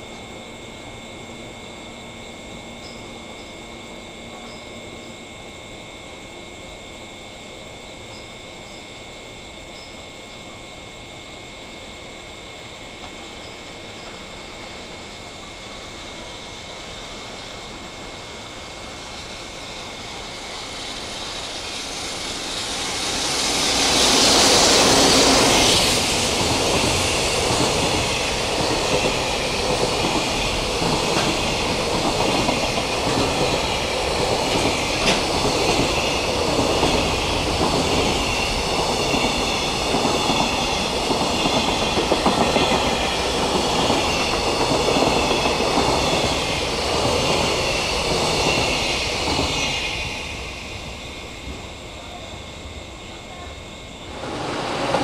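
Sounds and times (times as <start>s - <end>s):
electric locomotive passing: 0.0s - 55.0s
train wheels clickety-clack: 13.0s - 14.8s, 19.0s - 52.2s, 54.1s - 55.0s.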